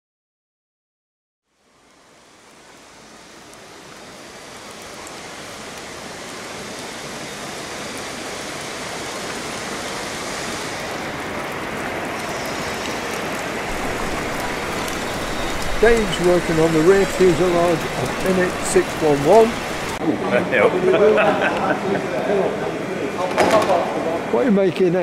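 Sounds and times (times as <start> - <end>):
rain on wet concrete: 1.5 - 20.0.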